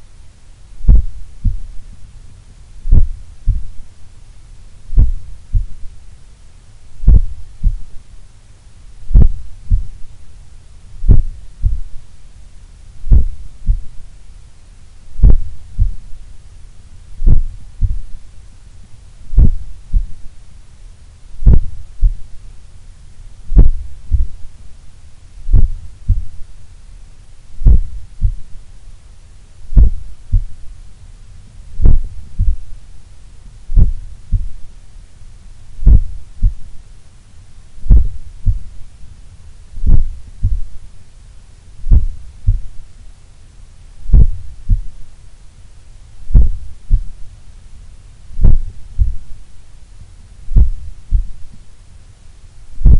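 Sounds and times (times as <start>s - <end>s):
heartbeat through stethoscope: 0.8s - 1.8s, 2.9s - 3.9s, 4.9s - 5.9s, 7.0s - 8.0s, 9.1s - 10.1s, 11.0s - 12.0s, 13.0s - 14.0s, 15.2s - 16.2s, 17.2s - 18.2s, 19.3s - 20.3s, 21.4s - 22.3s, 23.5s - 24.5s, 25.5s - 26.5s, 27.6s - 28.6s, 29.7s - 30.6s, 31.8s - 32.8s, 33.7s - 34.7s, 35.8s - 36.7s, 37.8s - 38.8s, 39.8s - 40.8s, 41.8s - 42.8s, 44.1s - 45.0s, 46.2s - 47.2s, 48.4s - 49.3s, 50.0s - 51.6s.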